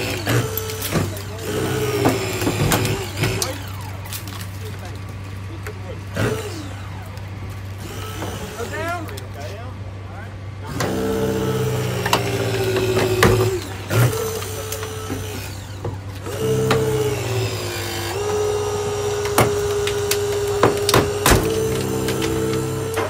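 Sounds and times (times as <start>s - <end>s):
metal cracking and snapping: 0.0s - 5.2s, 19.0s - 23.0s
hydraulic pump whining: 0.0s - 23.0s.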